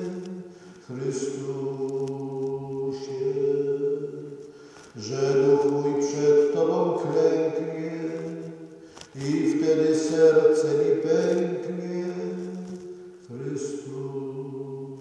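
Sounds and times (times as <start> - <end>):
voices singing religious song: 0.0 - 15.0.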